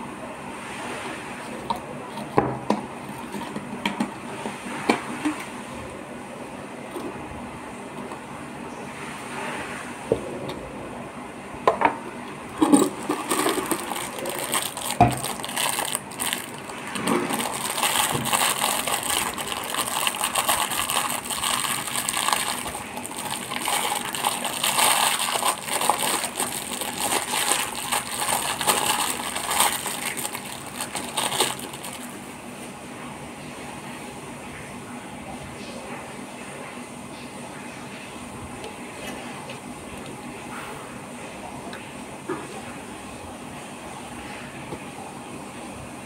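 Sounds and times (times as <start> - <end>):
plastic wrapper crinkling: 12.5 - 32.2.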